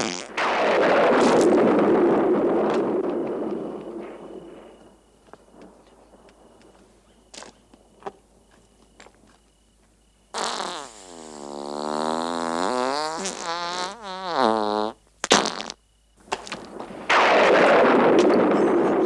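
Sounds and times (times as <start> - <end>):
comic fart sound effect: 0.0 - 0.4, 10.4 - 15.8
loud rushing lightning effect: 0.0 - 4.6, 16.6 - 19.0
sharp cracks: 0.0 - 8.2, 15.2 - 19.0.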